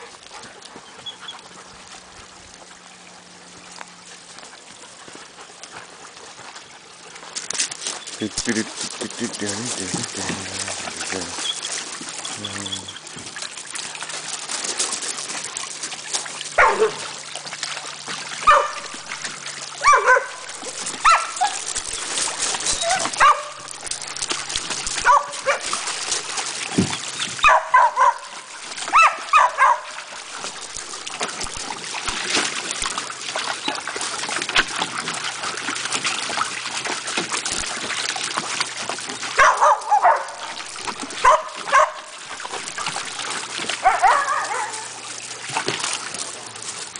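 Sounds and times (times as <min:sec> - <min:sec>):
dogs splashing in water: 0:00.0 - 0:46.9
dogs barking and whining: 0:16.4 - 0:30.8, 0:39.2 - 0:45.1.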